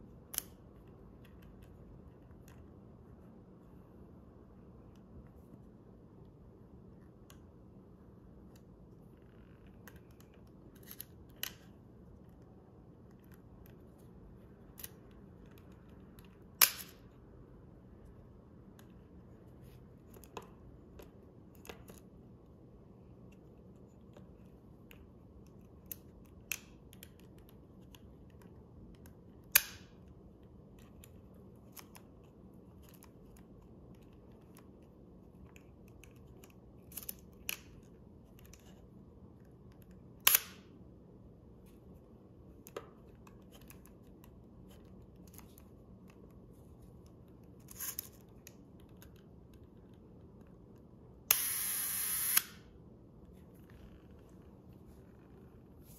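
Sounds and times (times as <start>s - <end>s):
camera shutter clicks: 51.3s - 52.6s.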